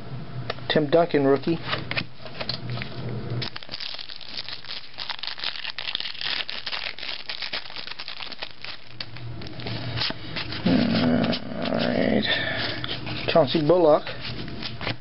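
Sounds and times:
foil wrapper crinkling and tearing: 3.4 - 10.2.

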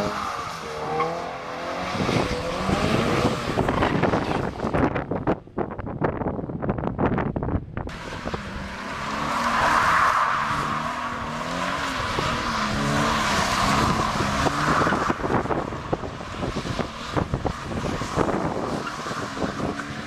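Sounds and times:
car engine revving: 0.0 - 5.0, 7.9 - 20.0
tyres spinning on wet tarmac: 8.0 - 20.0.

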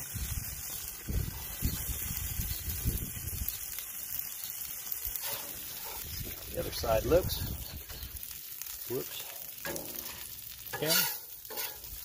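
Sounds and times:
wind gusts on microphone: 0.0 - 3.5, 6.0 - 7.8
food sizzling on a griddle: 0.0 - 12.0.

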